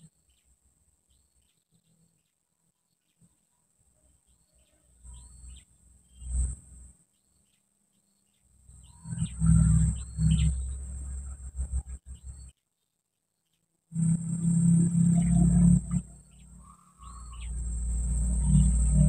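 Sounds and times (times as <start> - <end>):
small birds chirping: 0.0 - 13.7, 14.3 - 19.0
low rumbling on microphone: 8.8 - 12.5, 14.0 - 19.0
high insect buzz: 14.0 - 19.0.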